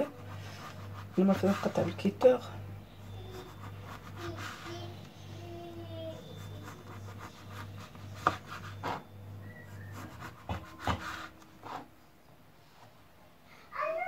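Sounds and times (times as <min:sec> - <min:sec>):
knife sawing through crusty dough: 0:00.0 - 0:02.1, 0:03.0 - 0:04.9, 0:06.1 - 0:09.0, 0:09.6 - 0:11.8
steady low hum: 0:00.0 - 0:13.6.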